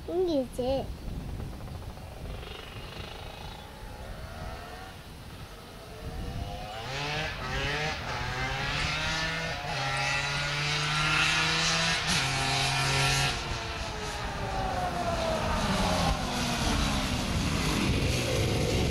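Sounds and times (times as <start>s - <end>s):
quad engine revving: 2.2s - 5.0s, 6.0s - 18.9s.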